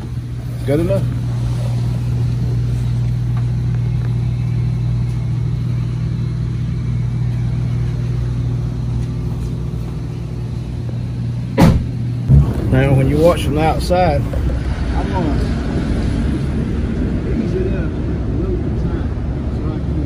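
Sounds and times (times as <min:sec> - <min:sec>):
car engine idling: 0:00.0 - 0:20.0
sharp knock: 0:11.6 - 0:12.8.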